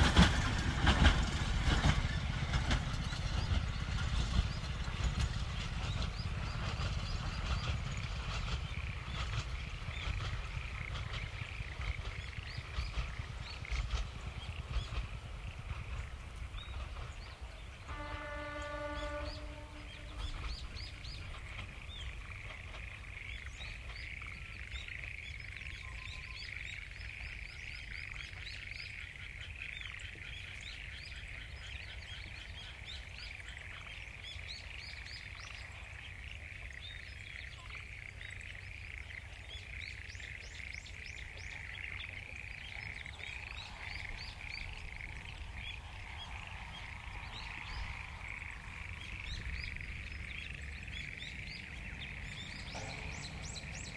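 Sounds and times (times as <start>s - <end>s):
train horn: 17.7s - 20.8s, 52.3s - 53.9s
frogs calling in a dense trill: 20.2s - 53.9s.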